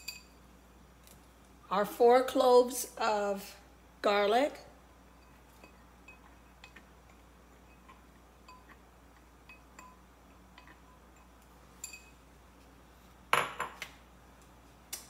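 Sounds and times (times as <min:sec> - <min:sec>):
glass cup clinking: 0:07.6 - 0:08.8, 0:09.4 - 0:12.2, 0:13.4 - 0:13.8.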